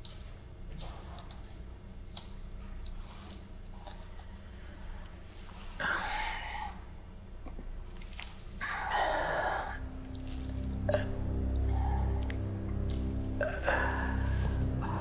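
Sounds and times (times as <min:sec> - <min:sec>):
low music drone: 0:07.8 - 0:15.0
heavy breaths: 0:08.6 - 0:15.0.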